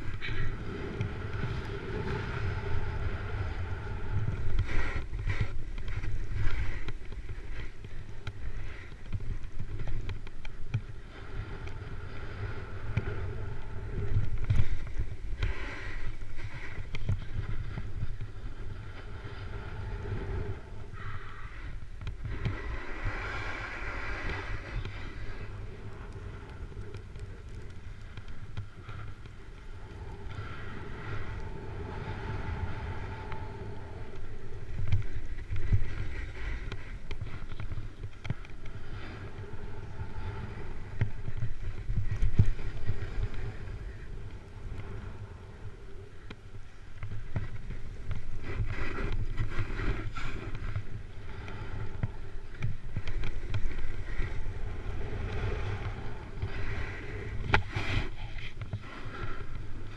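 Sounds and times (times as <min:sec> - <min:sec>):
snowboard scraping over snow: 0:00.0 - 0:26.0, 0:39.0 - 0:59.9
wind on microphone: 0:00.0 - 0:59.9.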